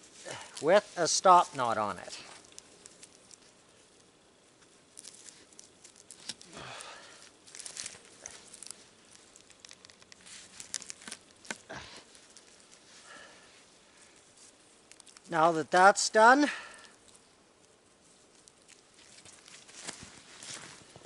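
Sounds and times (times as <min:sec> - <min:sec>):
wool sleeve rustling: 0:00.0 - 0:15.3, 0:16.9 - 0:21.0
cord rustling and clicking on poles: 0:00.0 - 0:15.9.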